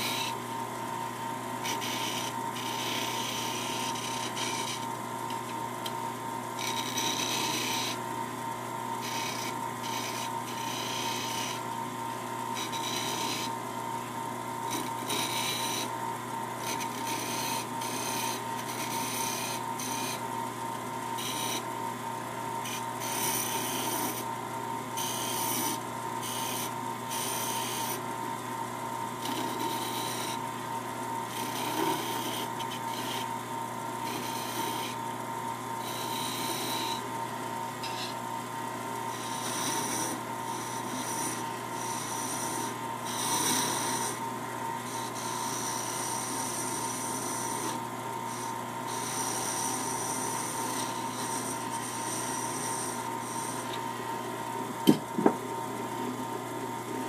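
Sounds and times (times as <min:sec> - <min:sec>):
lathe motor hum: 0:00.0 - 0:57.0
file rasping on wood: 0:06.6 - 0:08.0, 0:12.6 - 0:13.5, 0:31.3 - 0:33.3, 0:39.1 - 0:44.2, 0:44.9 - 0:53.7.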